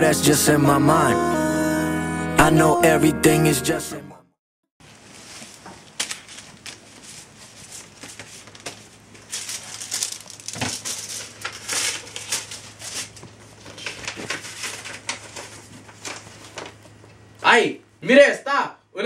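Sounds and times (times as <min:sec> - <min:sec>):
paper rustling and crinkling: 0:04.8 - 0:17.2.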